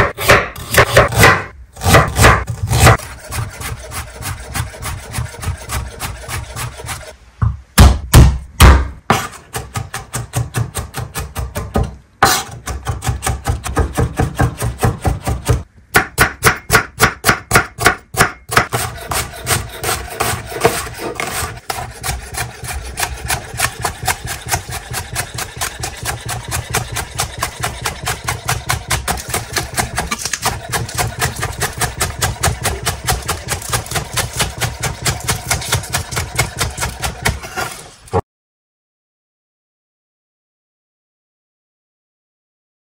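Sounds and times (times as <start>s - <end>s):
rapid chopping on wooden board: 0.0s - 3.0s, 7.8s - 37.6s.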